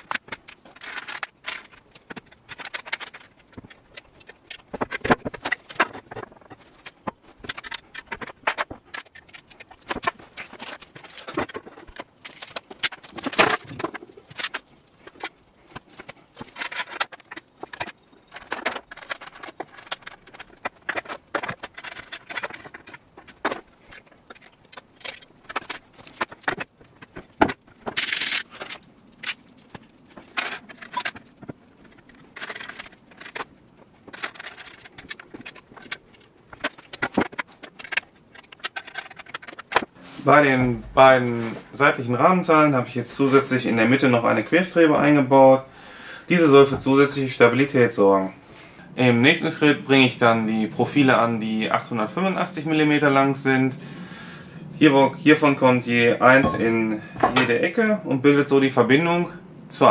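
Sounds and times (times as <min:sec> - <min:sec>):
metal parts clinking: 0:00.0 - 0:39.9, 0:56.3 - 0:57.6
metal scraping: 0:56.3 - 0:57.6.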